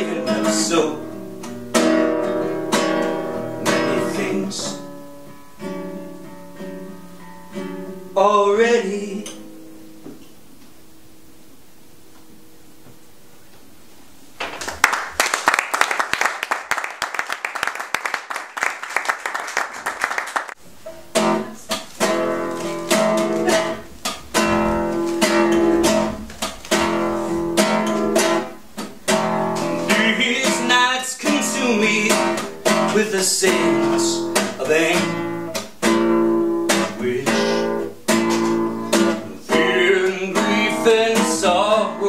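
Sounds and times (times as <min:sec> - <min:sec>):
classical guitar strumming: 0:00.0 - 0:13.0, 0:20.6 - 0:42.0.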